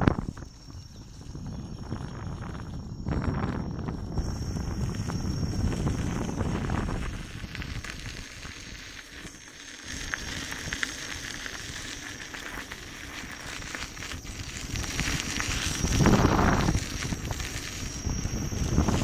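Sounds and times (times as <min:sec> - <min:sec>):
wind buffeting microphone: 0:00.0 - 0:08.9, 0:12.9 - 0:19.0
tyre rolling over gravel: 0:06.2 - 0:19.0.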